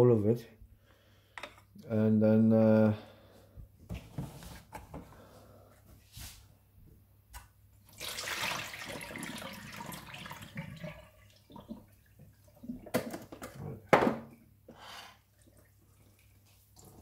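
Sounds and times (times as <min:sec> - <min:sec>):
liquid splashing into metal sink: 0:07.9 - 0:14.1.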